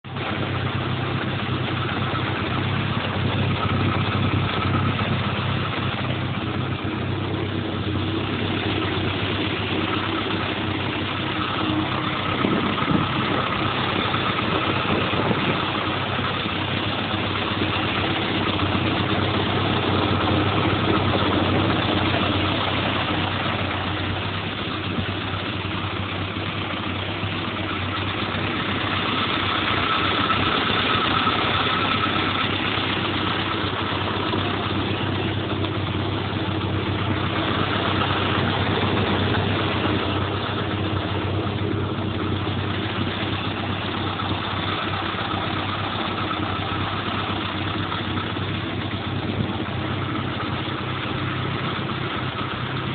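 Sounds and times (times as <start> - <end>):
tractor engine idling: 0.0 - 52.9.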